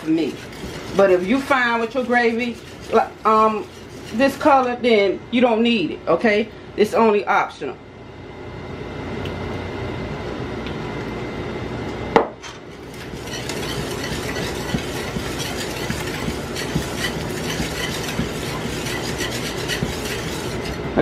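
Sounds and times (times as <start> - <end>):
utensil stirring in a pot: 0.0 - 5.1, 12.7 - 21.0.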